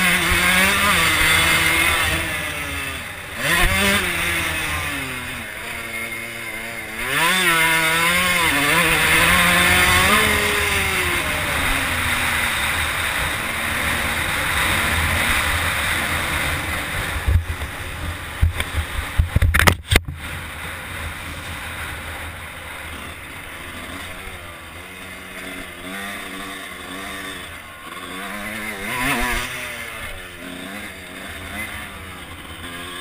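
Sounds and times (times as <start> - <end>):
dirt bike engine: 0.0 - 33.0
wind rush on microphone: 16.6 - 21.6.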